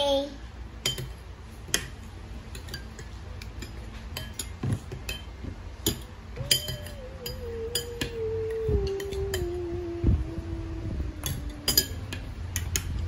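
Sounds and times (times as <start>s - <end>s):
spoon clinking against bowl: 0.8s - 1.9s, 2.5s - 8.2s, 11.2s - 12.9s
long steady falling tone: 6.3s - 12.8s.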